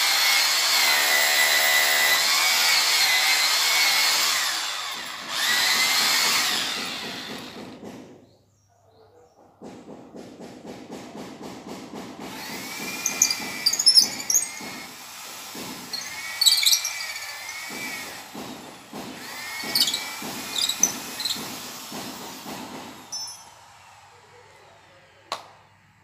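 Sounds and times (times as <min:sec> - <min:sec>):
electric drill boring into steel: 0:00.0 - 0:07.6, 0:12.3 - 0:22.4.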